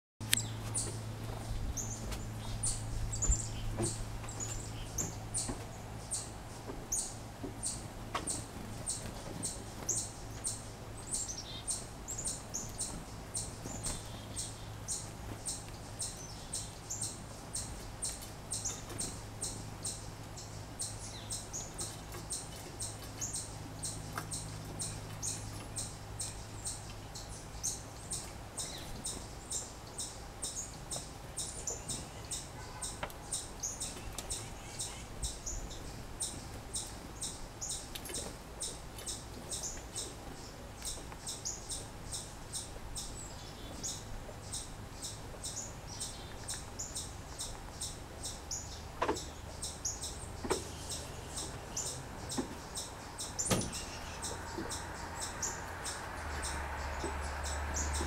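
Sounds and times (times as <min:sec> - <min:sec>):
steady low hum: 0:00.2 - 0:58.0.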